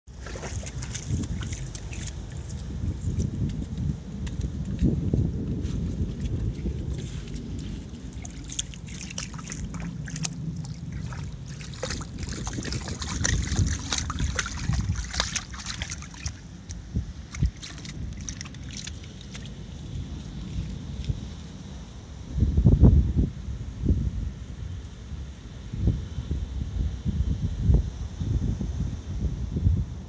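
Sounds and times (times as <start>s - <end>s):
small crackles and splashes: 0.1s - 4.9s, 5.8s - 21.2s
seawater lapping and trickling: 0.1s - 21.8s
wind rumble on microphone: 0.1s - 30.0s.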